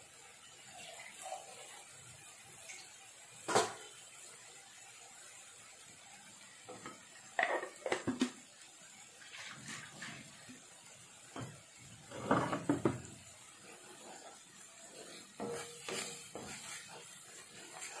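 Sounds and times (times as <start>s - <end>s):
paste sizzling in a pan: 0.0s - 18.0s
knocks and clatters: 12.2s - 13.1s.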